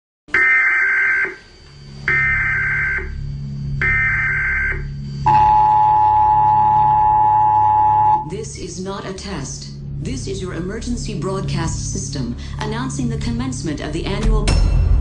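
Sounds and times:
data burst tones: 0:00.3 - 0:08.3
low hum: 0:00.8 - 0:15.0
two-tone attention signal: 0:02.1 - 0:08.3.

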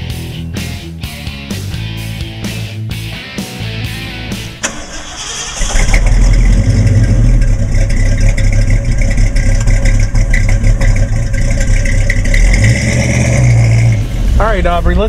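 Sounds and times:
car engine idling: 0:03.5 - 0:15.0.

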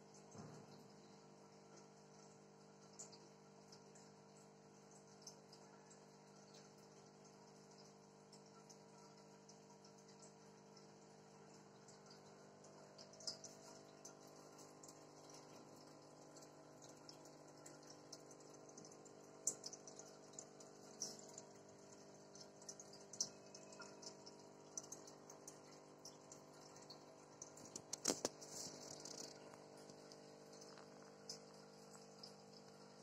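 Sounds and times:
aquarium air stone bubbling: 0:00.0 - 0:33.0
aquarium pump hum: 0:00.0 - 0:33.0.

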